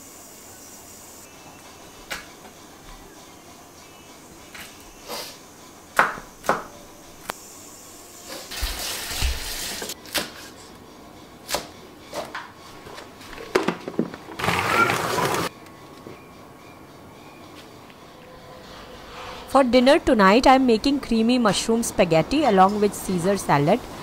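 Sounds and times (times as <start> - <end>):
knife chopping on wooden board: 6.0 - 6.7.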